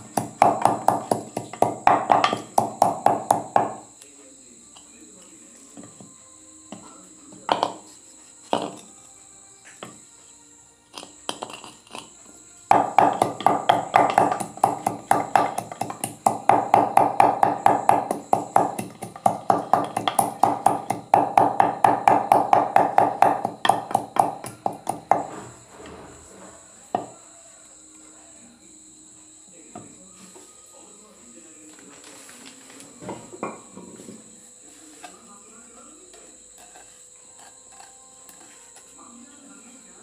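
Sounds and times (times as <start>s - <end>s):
pestle pounding in stone mortar: 0.0s - 3.9s, 8.5s - 8.9s, 10.9s - 12.1s, 12.7s - 25.6s
crickets chirping: 0.0s - 40.0s.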